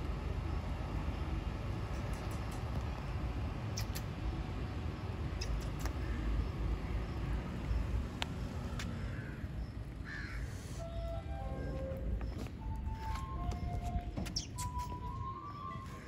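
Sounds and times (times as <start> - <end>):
low outdoor rumble: 0.0 - 16.0
crow calls: 8.9 - 10.9.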